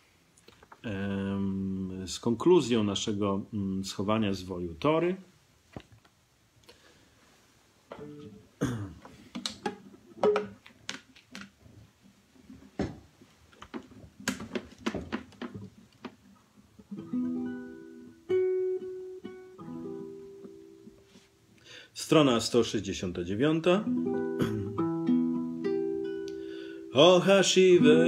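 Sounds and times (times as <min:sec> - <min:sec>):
acoustic guitar chords strummed: 0:16.9 - 0:21.0, 0:23.8 - 0:28.0.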